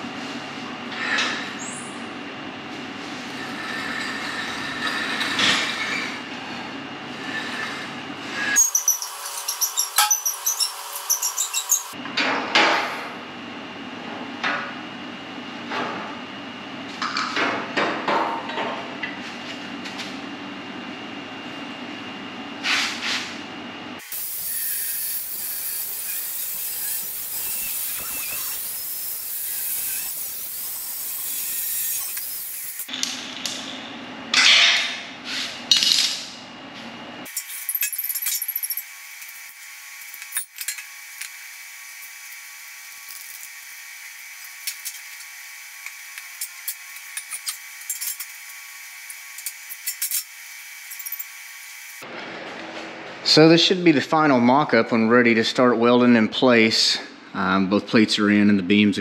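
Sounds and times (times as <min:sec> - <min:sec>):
angle grinder cutting steel: 0:08.5 - 0:12.0, 0:24.0 - 0:32.9, 0:37.3 - 0:52.0.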